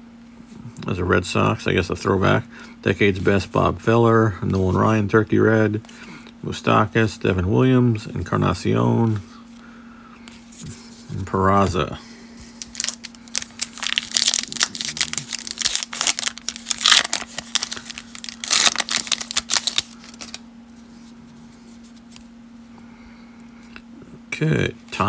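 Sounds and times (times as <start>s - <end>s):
faint steady hum: 0.0s - 25.0s
plastic wrapper crinkling and tearing: 12.6s - 20.4s.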